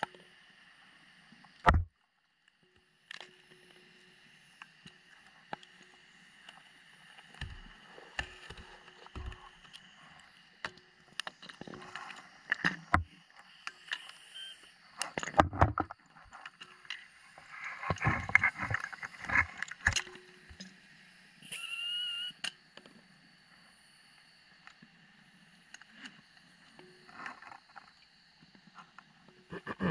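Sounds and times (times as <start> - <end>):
hiss with whistle-like tone: 13.3 - 15.2, 20.8 - 27.4
sharp clicks and knocks: 15.0 - 17.0.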